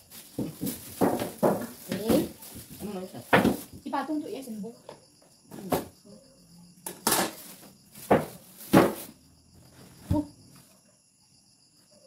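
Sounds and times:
packaging rustling and scraping: 0.0 - 3.8, 7.0 - 9.2.

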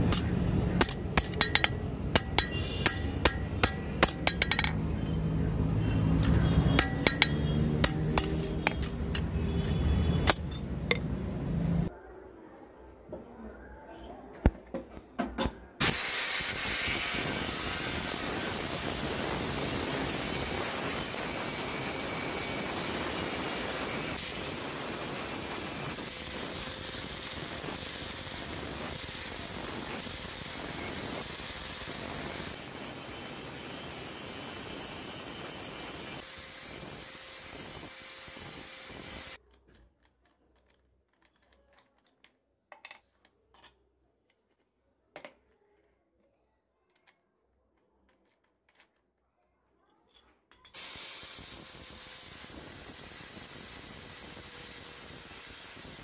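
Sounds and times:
angle grinder grinding steel: 0.0 - 11.8.

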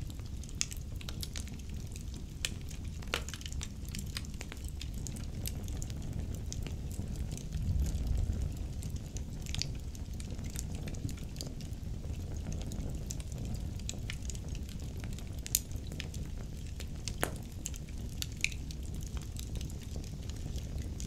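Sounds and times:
crackles and pops of burning logs: 0.0 - 21.0
fire burning in fireplace: 0.0 - 21.0.

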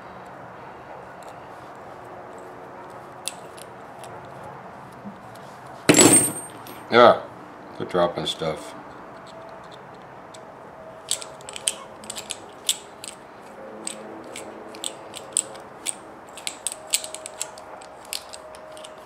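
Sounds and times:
metallic screwdriver clicks: 11.1 - 13.2, 13.8 - 19.0.

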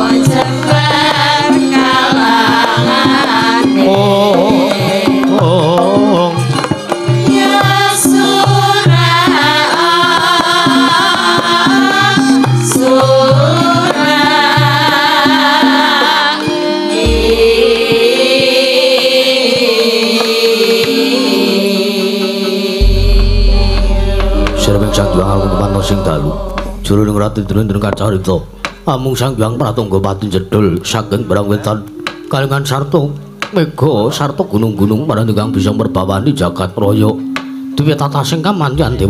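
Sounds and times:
tuned percussion: 0.0 - 21.6, 22.7 - 35.8
wavering singing voice: 0.0 - 31.5
hand drums: 0.0 - 34.0
deep low note: 17.0 - 18.4, 22.8 - 31.4.

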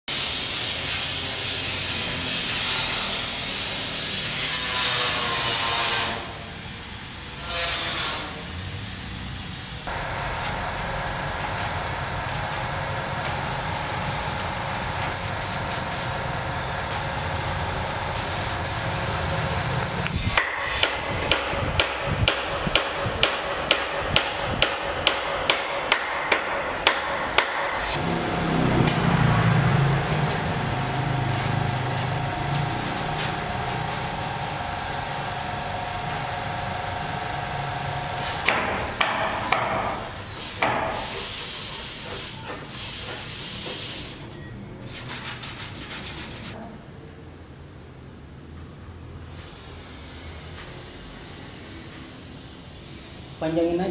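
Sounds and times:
air compressor and spray gun hiss: 0.1 - 44.3, 49.2 - 53.9
hammer blows: 20.0 - 41.4.

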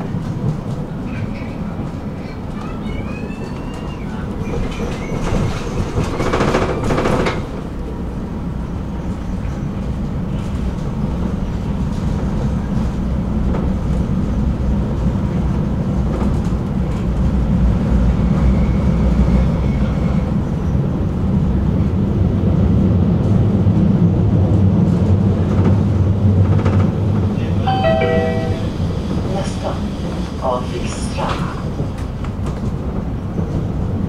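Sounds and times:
tram wheels rumbling on track: 0.0 - 34.0
faint thin high tone: 27.7 - 28.8.

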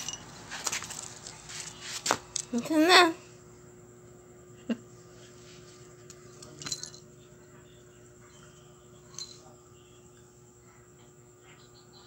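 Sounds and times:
cat collar bell jingling: 0.0 - 0.4, 6.4 - 7.1
faint steady hum: 0.0 - 12.0.

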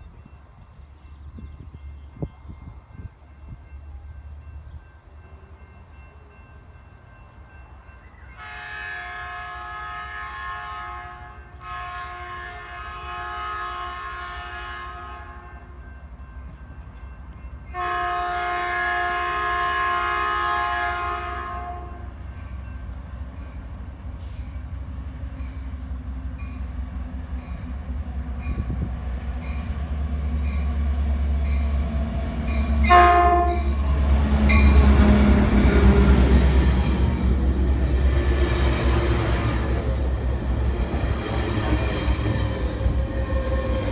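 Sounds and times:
diesel locomotive engine rumble: 0.0 - 43.9
train horn blasts: 8.3 - 16.0, 17.7 - 22.2, 32.4 - 36.5.

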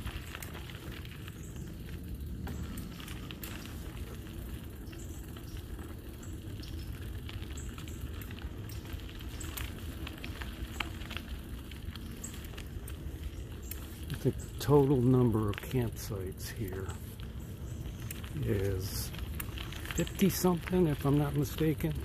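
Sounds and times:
tyres rolling over dirt road: 0.0 - 22.0
wind rumbling on microphone: 0.0 - 22.0.

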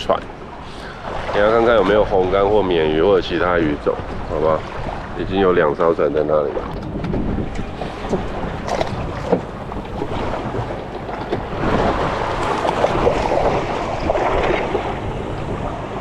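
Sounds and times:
water sloshing against boat hull: 0.0 - 16.0
wind buffeting microphone: 0.0 - 16.0.

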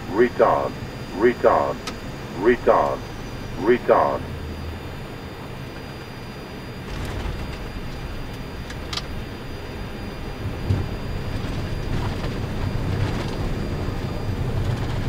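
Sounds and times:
airflow and wheels rumbling: 6.9 - 15.0.

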